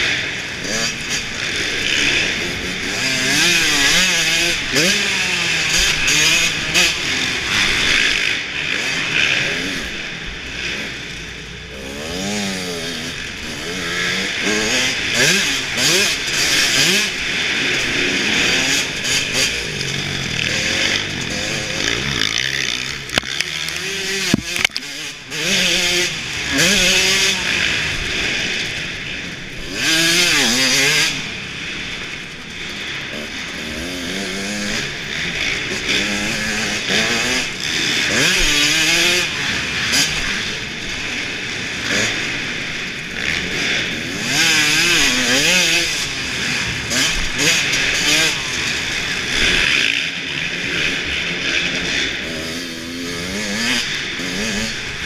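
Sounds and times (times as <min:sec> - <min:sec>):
dirt bike engine revving: 0:00.0 - 0:55.0
sharp knocks: 0:24.3 - 0:24.8.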